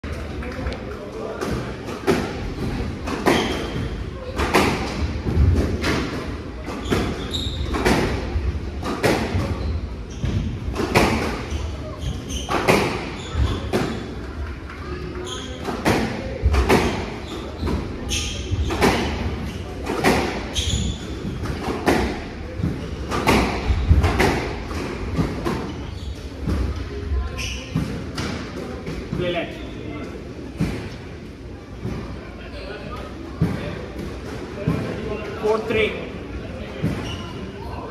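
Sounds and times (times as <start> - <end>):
squash ball hitting racquets and walls: 1.3 - 14.2, 14.9 - 29.4, 30.5 - 31.0, 33.3 - 35.2, 36.7 - 37.3
shoe squeaks on wooden floor: 6.7 - 7.9, 11.4 - 14.1, 15.1 - 15.8, 16.8 - 19.7, 20.5 - 21.4, 25.6 - 26.4, 27.3 - 27.9, 36.8 - 37.7.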